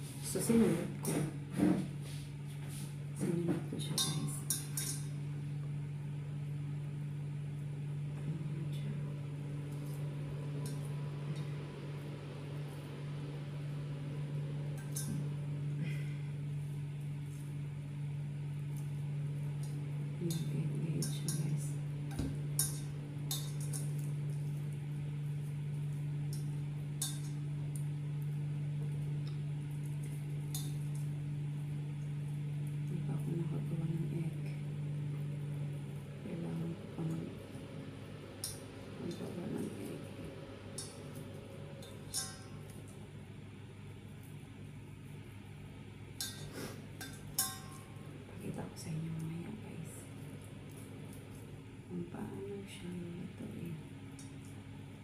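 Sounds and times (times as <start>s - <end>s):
steady low hum: 0.0s - 55.0s
rings clinking on metal bowl: 3.9s - 5.2s, 14.8s - 15.2s, 20.2s - 21.7s, 22.5s - 24.1s, 41.8s - 42.8s, 46.2s - 48.0s.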